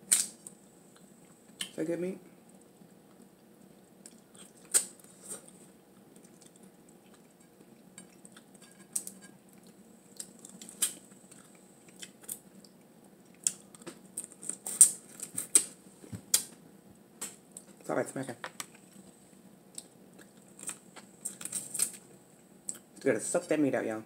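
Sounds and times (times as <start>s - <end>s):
faint low hum: 0.0s - 24.0s
eating crab clicks and smacks: 6.2s - 15.7s.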